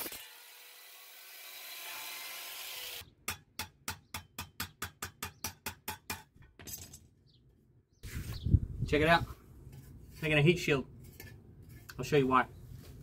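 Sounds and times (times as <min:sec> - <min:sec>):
angle grinder on sheet metal: 0:00.0 - 0:03.0.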